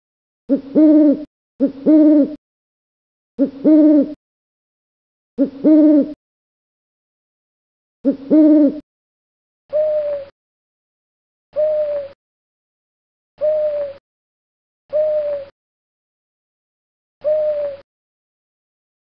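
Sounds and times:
owl hooting: 0.5s - 2.4s, 3.4s - 4.2s, 5.4s - 6.2s, 8.0s - 8.8s, 9.7s - 10.3s, 11.6s - 12.2s, 13.4s - 14.0s, 14.9s - 15.5s, 17.2s - 17.8s.

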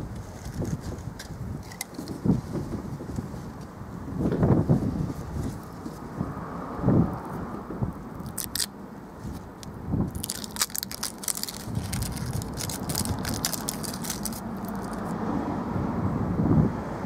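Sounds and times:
adhesive strip crackling: 8.2s - 8.7s, 9.6s - 15.1s.

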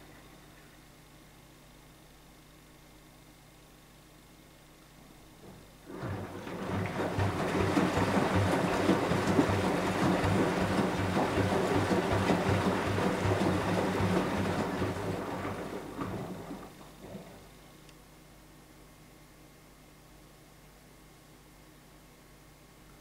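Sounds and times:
washing machine drum tumbling laundry: 5.3s - 17.4s.

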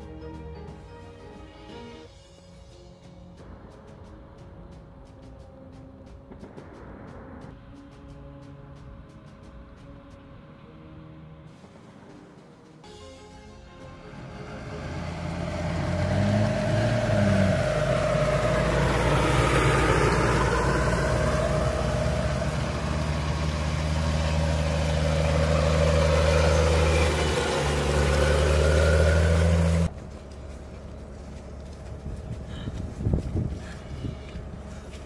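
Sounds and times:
diesel engine drone: 2.5s - 35.0s
armored vehicles driving past: 2.6s - 35.0s
rising and falling whine: 13.8s - 32.1s.

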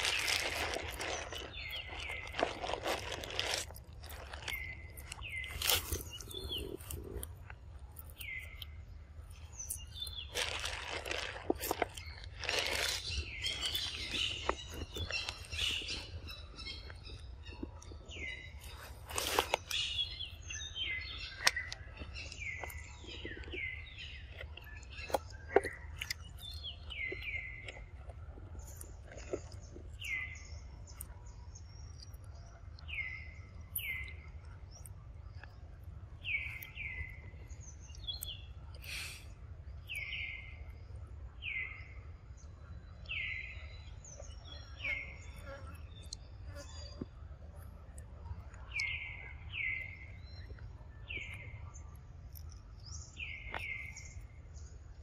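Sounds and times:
monkey chewing fruit: 0.0s - 31.1s
birds chirping: 0.0s - 55.0s.

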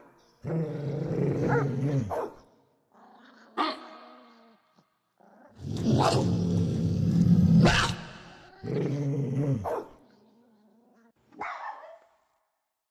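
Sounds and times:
dog growling: 0.4s - 2.2s, 2.9s - 11.2s
dog barking: 1.5s - 2.5s, 6.0s - 6.3s, 7.6s - 8.1s, 9.6s - 10.0s, 11.4s - 12.2s.

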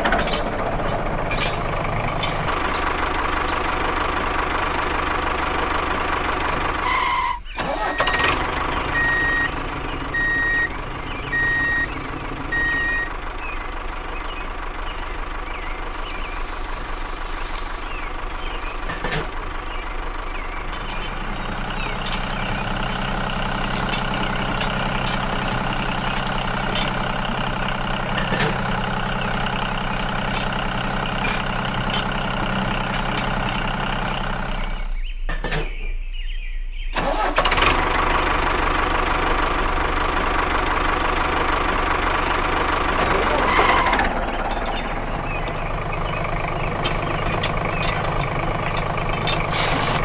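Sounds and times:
tractor engine running: 0.0s - 36.2s, 36.9s - 50.0s
reversing beeps: 8.9s - 13.1s.

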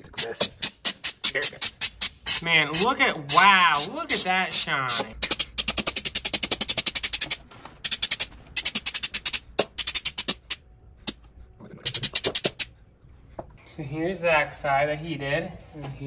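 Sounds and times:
spray can ball rattling: 4.5s - 11.2s, 11.8s - 12.7s.

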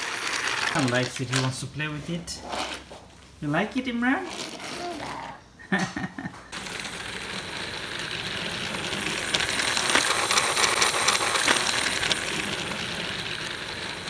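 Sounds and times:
toy train motor whir: 0.0s - 1.2s, 6.5s - 14.0s
wheels rattling on plastic track: 0.0s - 1.7s, 6.6s - 14.0s.

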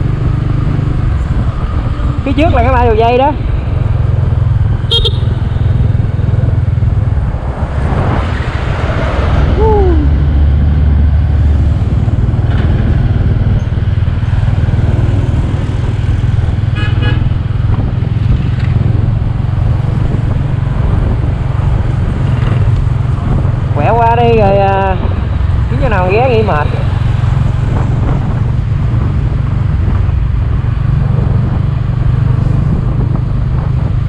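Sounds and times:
motorbike engine rumble: 0.0s - 34.0s
traffic passing: 0.0s - 34.0s
vehicle horn: 4.9s - 5.6s, 16.7s - 17.4s.

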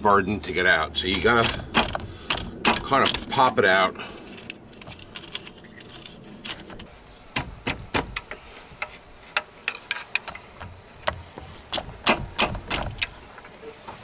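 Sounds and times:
pry bar clanking on metal: 1.1s - 3.4s.

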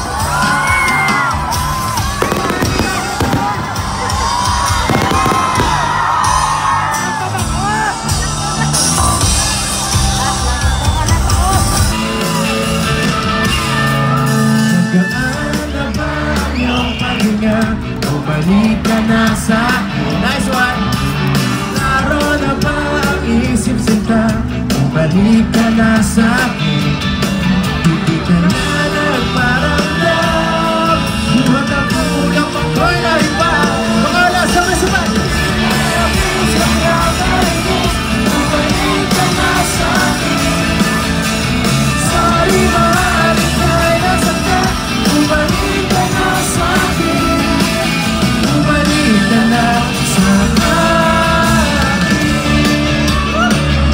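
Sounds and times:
crowd yelling and cheering: 0.0s - 53.9s
live rock band playing: 0.0s - 53.9s
lead singer singing: 13.8s - 53.9s.

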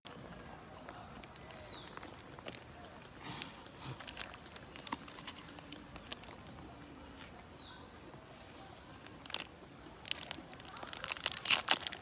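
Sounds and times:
plastic snack packet crinkling: 0.9s - 3.1s, 4.0s - 7.3s, 9.0s - 12.0s.

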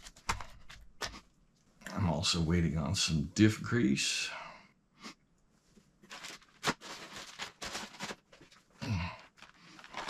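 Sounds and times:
plastic bags crinkling: 6.0s - 10.0s.

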